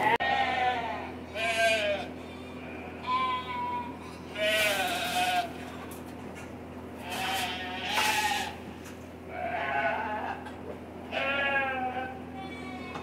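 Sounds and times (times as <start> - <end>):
lambs bleating: 0.0 - 6.1, 7.0 - 8.6, 9.3 - 10.5, 11.1 - 13.0.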